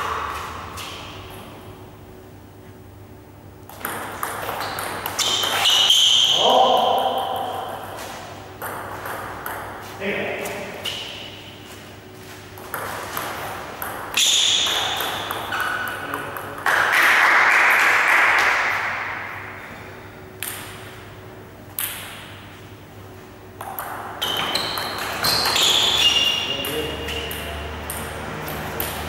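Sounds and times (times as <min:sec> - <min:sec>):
table tennis ball pings: 0:03.7 - 0:08.0, 0:08.6 - 0:09.8, 0:12.6 - 0:17.2, 0:23.6 - 0:29.0.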